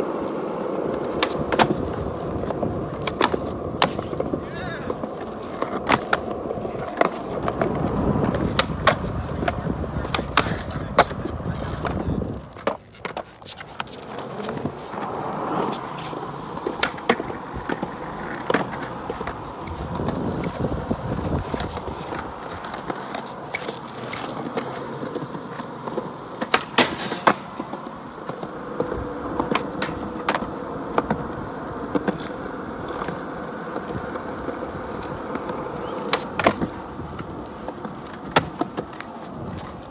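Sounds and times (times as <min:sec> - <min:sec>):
skateboard clacks: 0:00.0 - 0:39.9
skateboard wheels rolling on concrete: 0:00.0 - 0:39.9.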